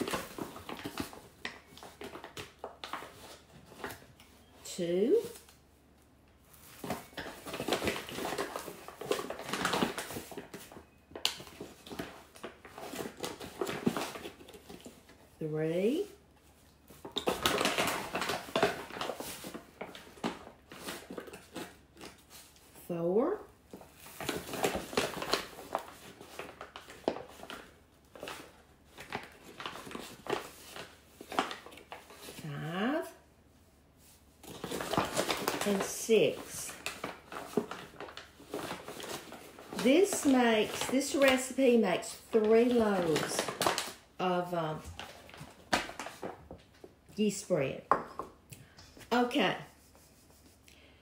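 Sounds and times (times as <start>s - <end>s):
paper sack rustling: 16.0s - 22.6s, 34.0s - 47.0s.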